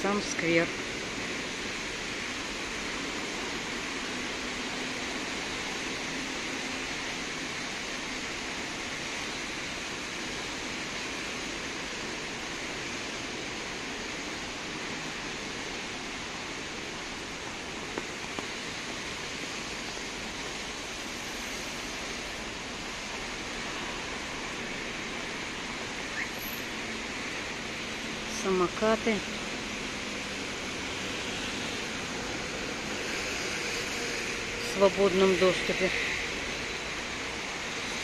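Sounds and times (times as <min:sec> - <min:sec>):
rain falling on paving: 0:00.0 - 0:38.0.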